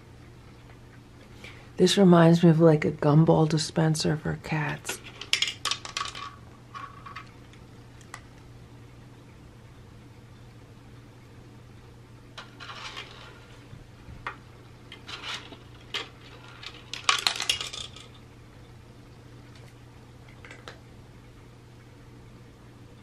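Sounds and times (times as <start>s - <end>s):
kibble dropping onto plastic tray: 5.2s - 7.3s, 14.9s - 18.1s
kibble rattling on plastic: 14.9s - 18.2s.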